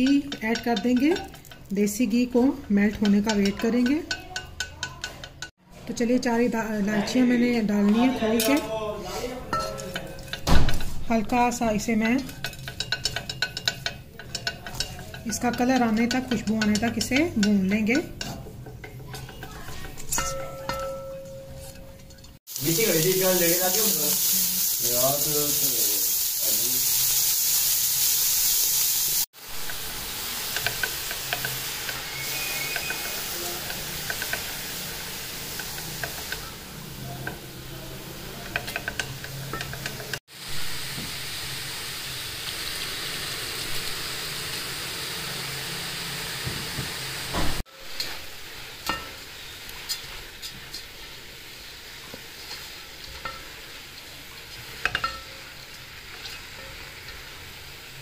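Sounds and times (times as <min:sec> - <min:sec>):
carrots sizzling in a pot: 0:00.0 - 0:58.0
spatula scraping a pot: 0:12.2 - 0:22.4, 0:30.4 - 0:36.6.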